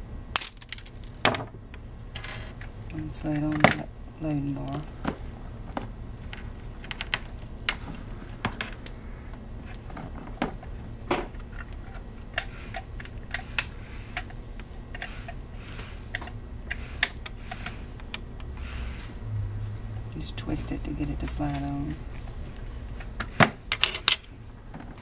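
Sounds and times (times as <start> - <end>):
low steady hum: 0.0 - 25.0
clicks of handling wires: 0.4 - 3.9.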